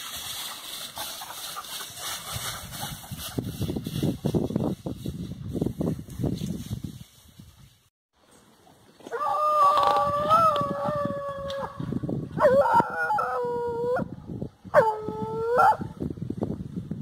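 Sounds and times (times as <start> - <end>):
rustling in grass and brush: 0.0 - 10.6.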